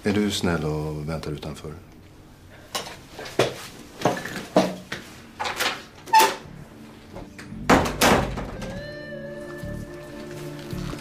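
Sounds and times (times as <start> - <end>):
door shutting thump: 7.7 - 8.8.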